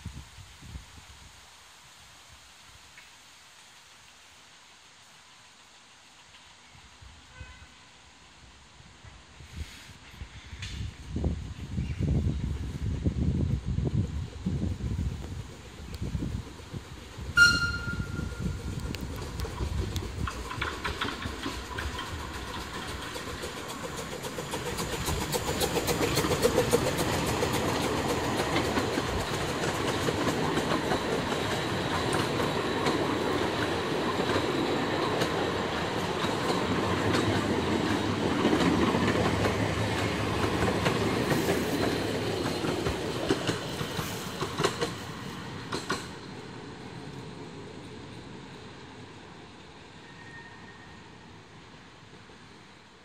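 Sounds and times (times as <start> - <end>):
train wheels clattering: 15.3 - 46.3.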